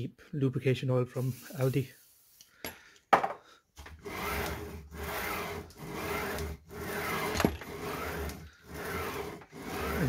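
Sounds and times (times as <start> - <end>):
saw head sliding on rails: 3.8 - 10.0.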